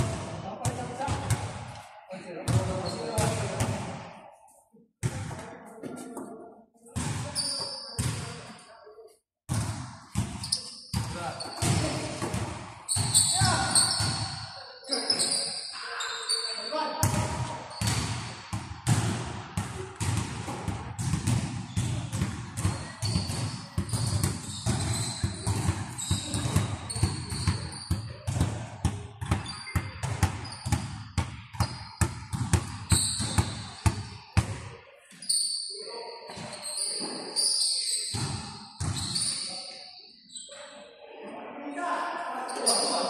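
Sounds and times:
sneakers squeaking on court: 7.0 - 8.6, 9.5 - 18.2, 21.0 - 34.5, 35.1 - 40.7
basketball bouncing on wooden floor: 18.8 - 34.6.

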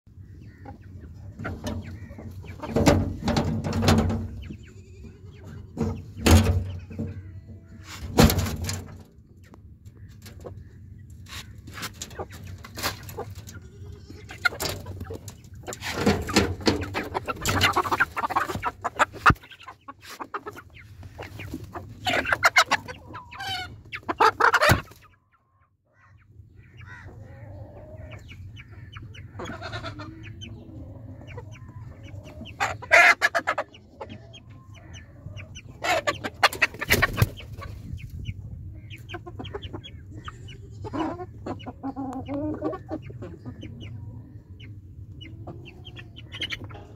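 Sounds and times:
chickens clucking: 0.1 - 46.9
metal coop door clanking: 2.6 - 4.4, 5.8 - 7.1, 8.0 - 9.0, 15.7 - 19.3.

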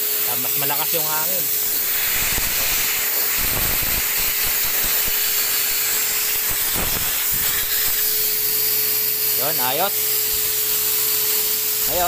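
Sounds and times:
paint sprayer turbine whine: 0.0 - 12.0.

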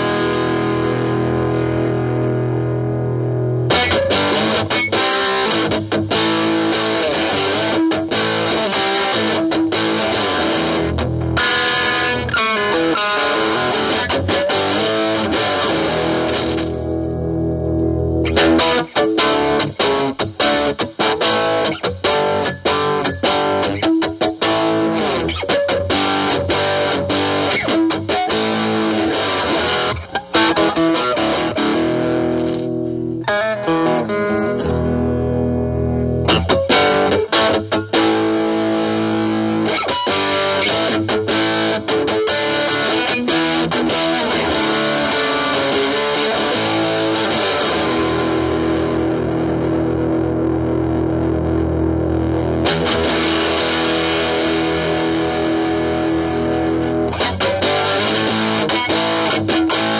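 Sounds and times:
distorted electric guitar: 0.0 - 59.9.

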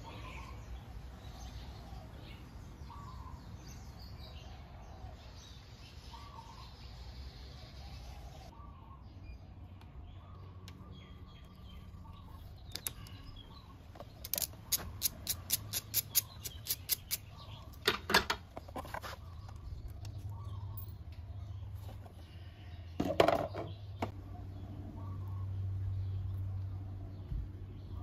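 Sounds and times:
ratchet clicking: 14.2 - 17.2.

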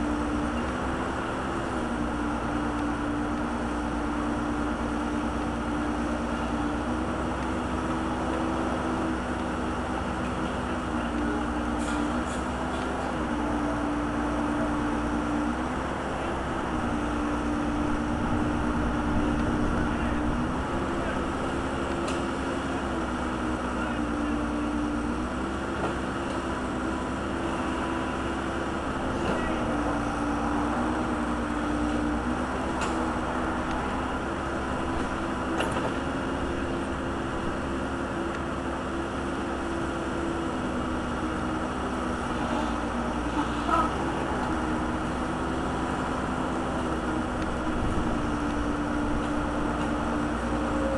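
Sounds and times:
backhoe engine running: 0.0 - 50.9.

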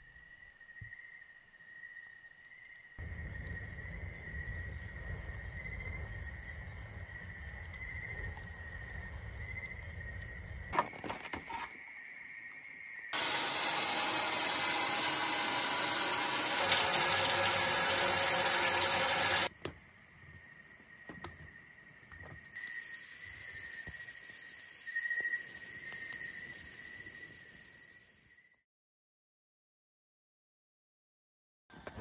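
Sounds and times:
water pouring in a stream: 13.2 - 19.5.

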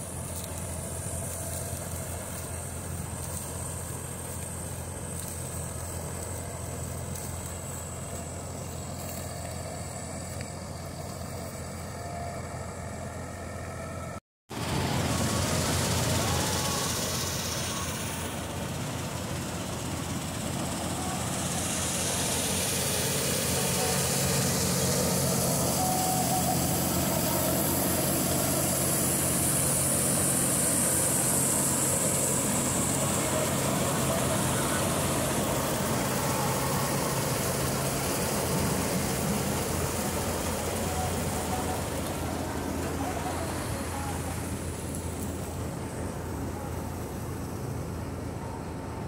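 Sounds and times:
combine harvester cutting wheat: 0.0 - 49.0
tractor diesel engine running: 0.0 - 49.0.

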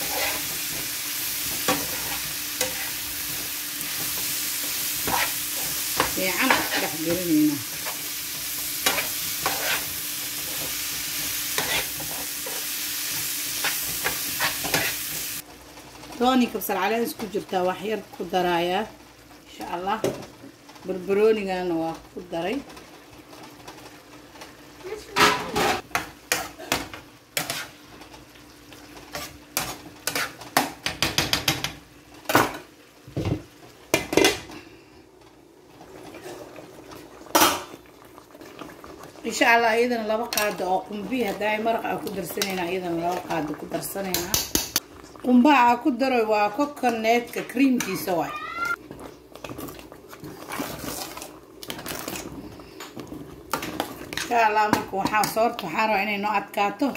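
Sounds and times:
spatula scraping a pan: 0.0 - 15.4, 25.4 - 27.9, 29.0 - 31.6
food sizzling in a frying pan: 0.0 - 56.9.

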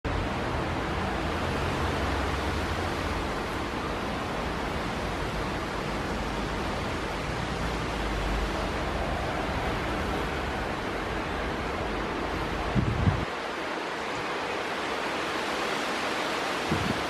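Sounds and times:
strong wind blowing: 0.1 - 17.0
wind buffeting microphone: 12.4 - 14.8, 16.4 - 17.0.

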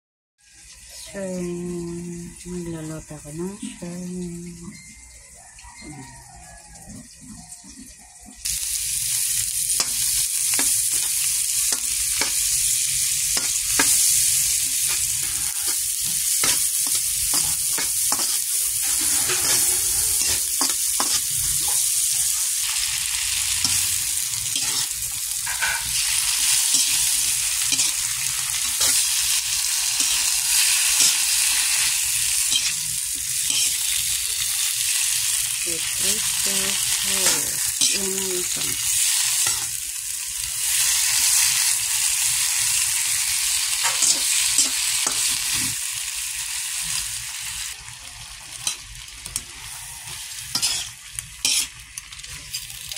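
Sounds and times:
garlic and onion sizzling in oil: 0.4 - 4.7, 5.3 - 52.9
spatula scraping pan: 13.3 - 34.0, 48.6 - 52.7.

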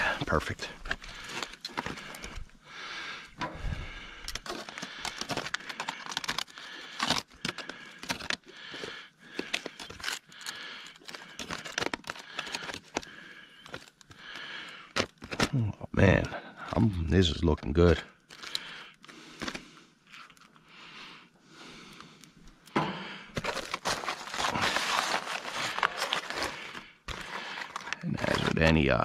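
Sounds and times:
aluminium foil crinkling: 0.0 - 2.5, 3.8 - 15.6, 18.1 - 20.7, 23.3 - 29.0.

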